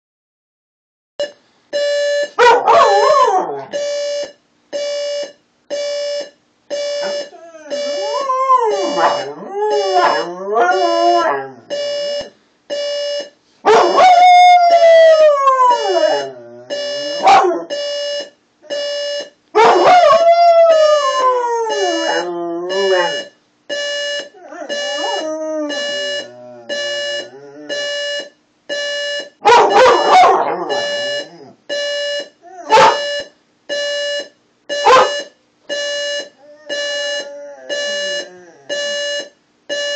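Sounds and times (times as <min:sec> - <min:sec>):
alarm clock beeping: 0:01.2 - 0:39.9
dog barking: 0:02.4 - 0:03.7, 0:08.7 - 0:11.5, 0:13.6 - 0:14.2, 0:17.2 - 0:17.7, 0:19.6 - 0:20.3, 0:23.0 - 0:23.2, 0:29.4 - 0:31.1, 0:32.6 - 0:33.1, 0:34.8 - 0:35.2
dog howling: 0:07.3 - 0:11.6, 0:13.7 - 0:16.7, 0:19.6 - 0:23.1, 0:24.4 - 0:26.7, 0:29.5 - 0:31.5, 0:36.4 - 0:38.7.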